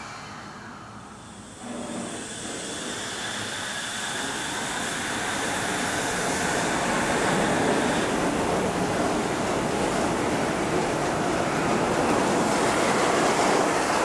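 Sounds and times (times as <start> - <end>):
monorail train rushing past: 0.0 - 14.0.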